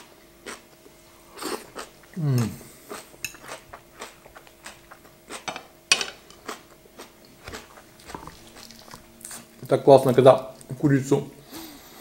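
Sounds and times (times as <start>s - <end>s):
close-up chewing: 1.4s - 5.4s, 6.4s - 9.7s.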